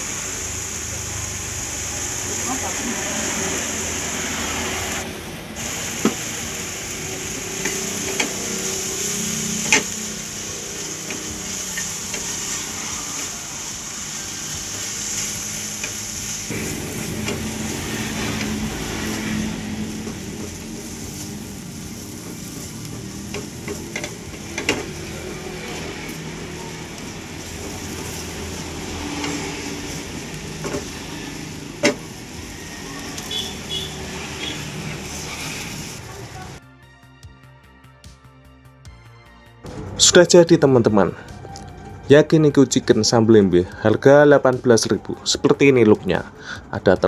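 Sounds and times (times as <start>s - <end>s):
chicken and onion sizzling in pan: 0.0s - 36.6s
spatula scraping pan: 7.4s - 13.4s, 34.4s - 36.0s.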